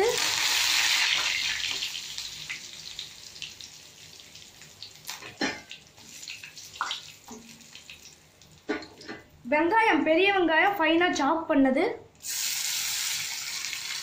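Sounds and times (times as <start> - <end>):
leaves sizzling in hot oil: 0.0 - 8.6, 12.2 - 14.0.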